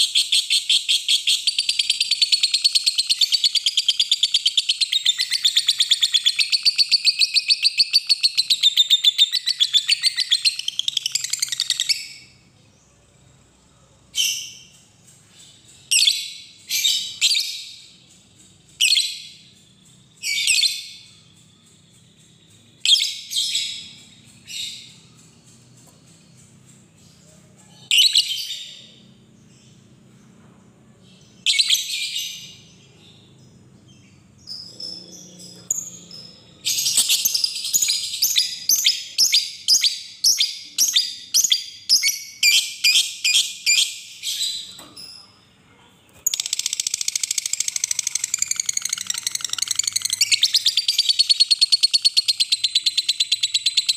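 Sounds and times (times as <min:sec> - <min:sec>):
lovebird chirping calls: 0:00.0 - 0:12.4, 0:14.1 - 0:29.8, 0:31.1 - 0:45.3, 0:46.1 - 0:53.9
lovebird chattering trill: 0:46.3 - 0:53.9.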